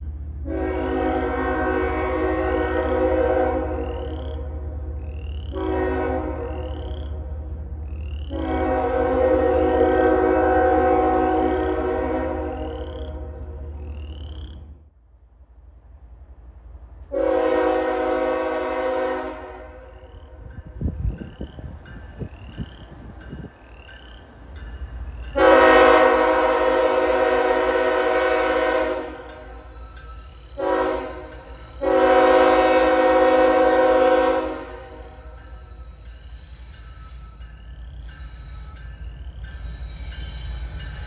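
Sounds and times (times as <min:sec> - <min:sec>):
locomotive air horn blasts: 0:00.4 - 0:04.3, 0:05.5 - 0:06.8, 0:08.3 - 0:12.9, 0:17.1 - 0:20.0, 0:25.4 - 0:29.6, 0:30.6 - 0:35.4
frogs chirping: 0:03.7 - 0:05.7, 0:06.4 - 0:08.4, 0:12.5 - 0:14.7, 0:19.9 - 0:25.4.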